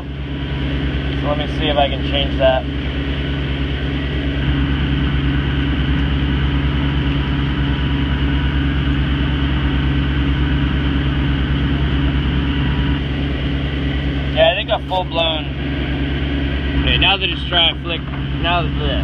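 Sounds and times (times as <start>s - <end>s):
boat engine droning: 0.0s - 19.0s.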